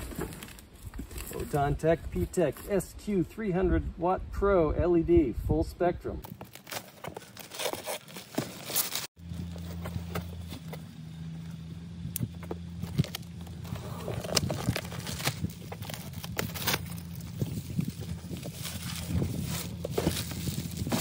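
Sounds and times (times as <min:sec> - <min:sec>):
cardboard box handled: 0:06.3 - 0:10.9, 0:12.4 - 0:21.0
low hum: 0:09.2 - 0:21.0
plastic bag rustling: 0:12.8 - 0:21.0.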